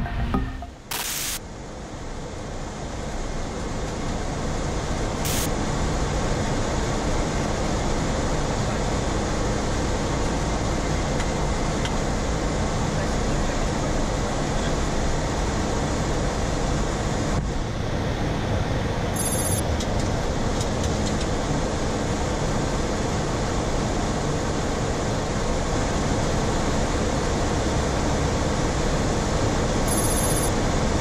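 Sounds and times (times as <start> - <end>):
cockpit airflow and engine noise: 0.8 - 31.0
high-pitched electronic chirp: 29.9 - 30.5.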